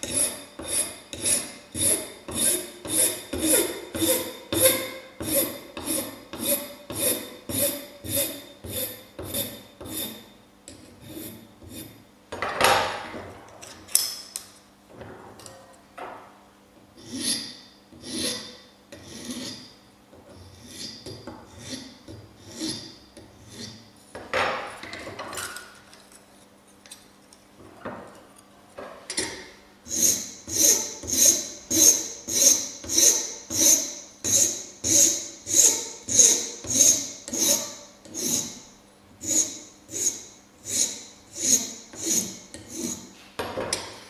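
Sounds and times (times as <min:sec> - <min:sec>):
hand file rasping on metal: 0:00.0 - 0:10.3, 0:11.0 - 0:12.0, 0:17.0 - 0:19.7, 0:20.4 - 0:23.8, 0:29.9 - 0:43.1.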